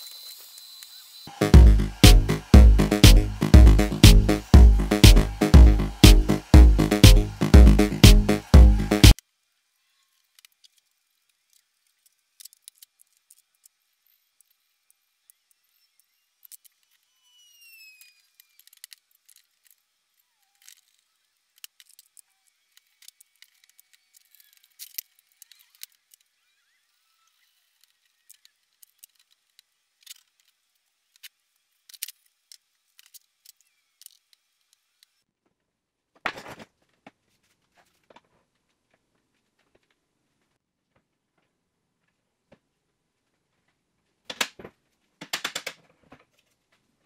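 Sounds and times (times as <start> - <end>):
short squeaks: 16.8 - 19.0.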